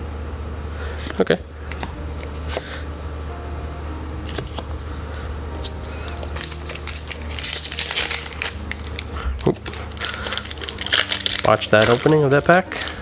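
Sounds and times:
low steady hum: 0.0s - 13.0s
foil wrapper crinkling: 5.6s - 13.0s
trading cards clicking down: 5.6s - 13.0s.

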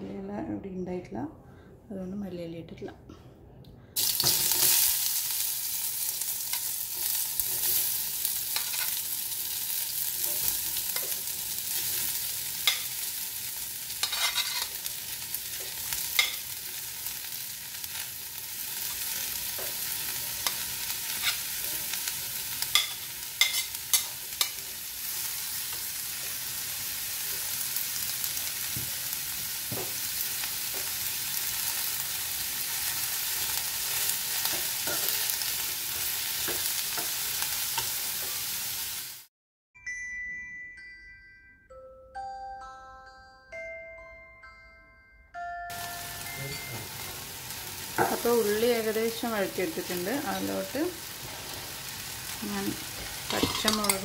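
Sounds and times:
onions sizzling in hot oil: 4.0s - 39.3s, 45.7s - 54.0s
steel spoon scraping a pan: 7.4s - 9.1s, 13.9s - 16.6s, 18.8s - 25.9s, 52.9s - 54.0s.

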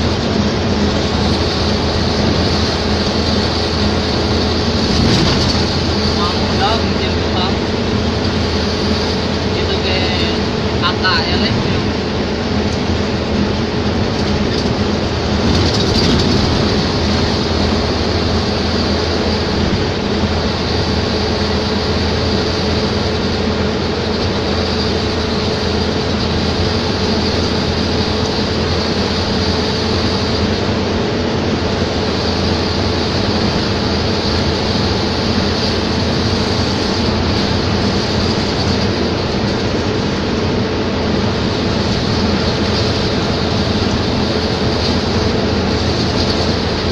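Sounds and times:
road and tyre noise: 0.0s - 46.9s
vehicle engine drone: 0.0s - 46.9s.

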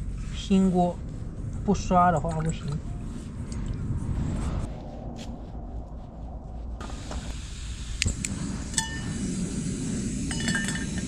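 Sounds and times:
low steady rumble: 0.0s - 11.0s
metal wok clink: 10.3s - 11.0s.

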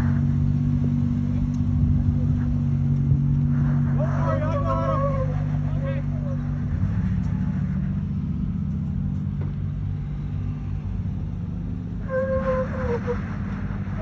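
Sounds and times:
car engine running: 0.0s - 14.0s
high whistle-like tone: 12.0s - 13.3s.

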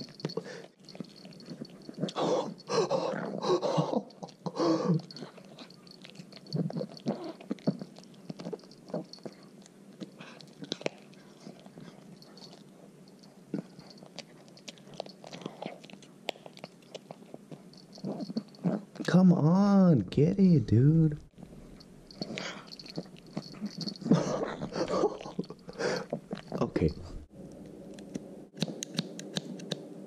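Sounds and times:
dog chewing wetly: 0.0s - 3.0s, 3.7s - 19.1s, 21.4s - 26.6s.

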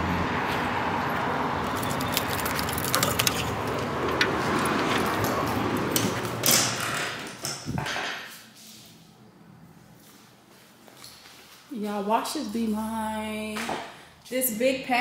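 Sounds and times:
keys jangling: 1.7s - 3.6s
door being unlocked and opened: 1.8s - 8.2s.

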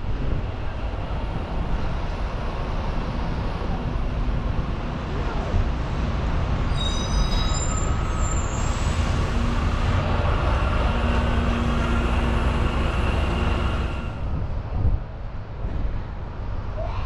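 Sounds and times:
bus engine and road rumble: 0.0s - 17.0s
high-pitched squeal: 6.6s - 14.2s.

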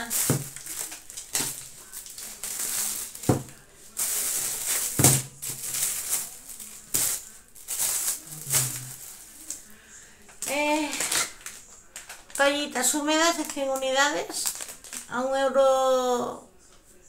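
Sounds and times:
items knocking down: 0.0s - 9.1s
plastic bags rustling: 0.0s - 15.3s.

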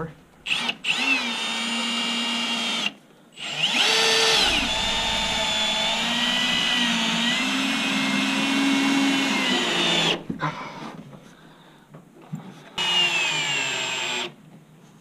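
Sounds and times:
cordless drill driving screw: 0.5s - 4.6s, 5.5s - 10.2s, 12.8s - 14.4s.

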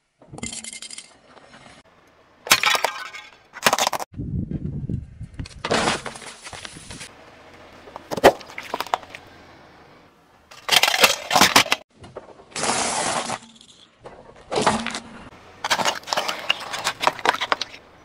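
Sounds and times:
metallic clinking crunch: 10.5s - 11.8s, 12.6s - 18.0s
tyre crushing brittle objects: 10.5s - 18.0s.

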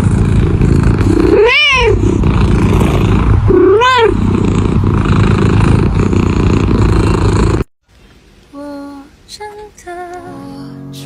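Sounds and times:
cat purring: 0.0s - 7.7s
cat meowing: 1.3s - 2.0s, 3.5s - 4.2s.

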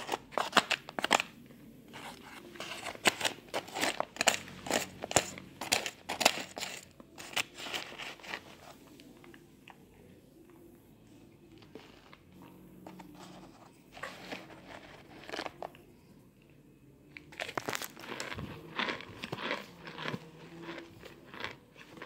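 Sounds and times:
powder chunks crunching: 2.0s - 8.4s, 17.2s - 22.0s.

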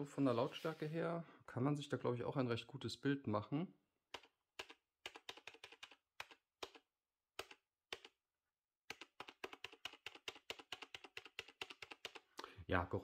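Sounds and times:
keyboard keystrokes: 7.4s - 8.2s.

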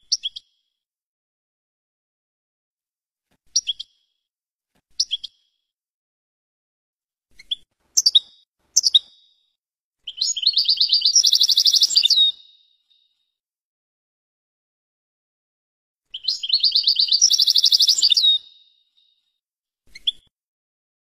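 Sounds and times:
goldfinch chirps and trills: 7.4s - 9.4s, 10.0s - 13.1s, 16.1s - 19.2s.

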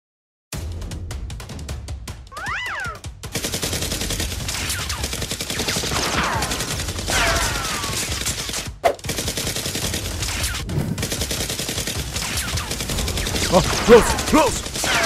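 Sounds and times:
rapid automatic gunfire: 3.2s - 15.0s
loud crack: 12.3s - 15.0s.

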